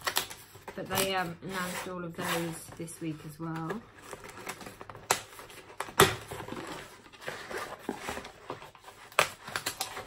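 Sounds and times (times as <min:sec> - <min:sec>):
cardboard rustling and scraping: 0:00.1 - 0:10.0.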